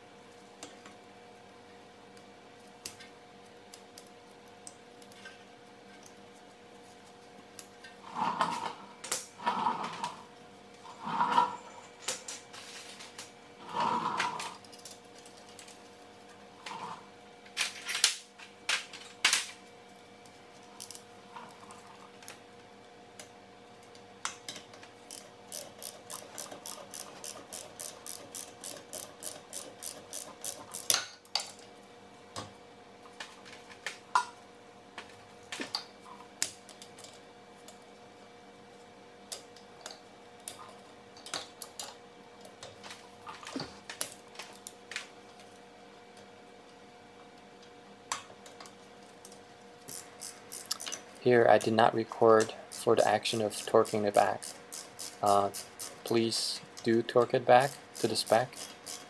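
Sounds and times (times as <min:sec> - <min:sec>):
ratchet wrench clicking: 0:25.1 - 0:31.0, 0:49.9 - 0:51.0, 0:53.8 - 0:56.0, 0:57.6 - 0:59.0.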